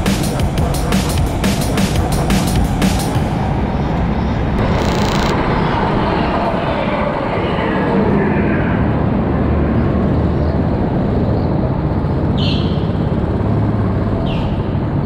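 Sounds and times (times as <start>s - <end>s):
go-kart engine drone: 0.0s - 15.0s.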